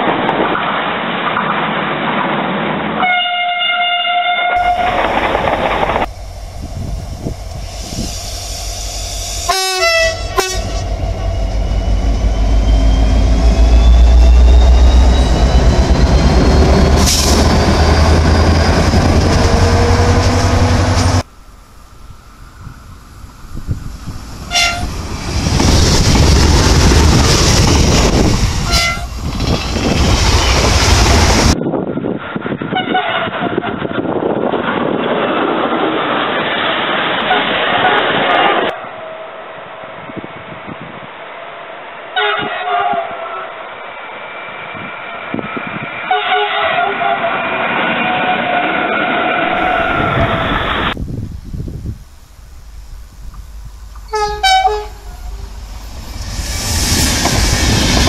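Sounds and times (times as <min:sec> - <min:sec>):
short horn blasts: 0:03.0 - 0:04.9, 0:09.4 - 0:11.0, 0:24.5 - 0:24.9, 0:28.7 - 0:29.1, 0:46.1 - 0:47.3, 0:54.1 - 0:55.5
train horn: 0:03.0 - 0:05.0, 0:09.4 - 0:11.7, 0:24.5 - 0:24.9, 0:28.6 - 0:29.1, 0:32.7 - 0:33.8, 0:37.2 - 0:38.9, 0:42.2 - 0:43.5, 0:46.1 - 0:47.4, 0:54.1 - 0:55.5
diesel locomotive engine rumble: 0:04.5 - 0:58.0
train wheels on rails: 0:04.6 - 0:58.0.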